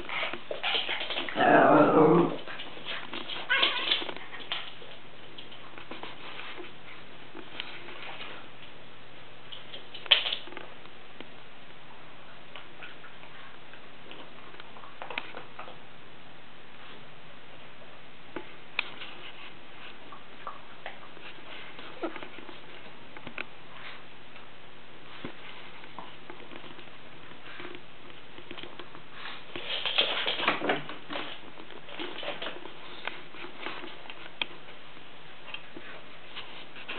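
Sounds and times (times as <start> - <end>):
pets scrabbling on floor: 0.0 - 8.7, 25.1 - 36.9.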